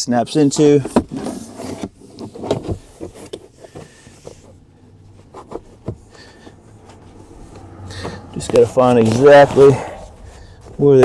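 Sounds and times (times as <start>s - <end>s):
floor mat scraping floor: 7.0s - 10.9s.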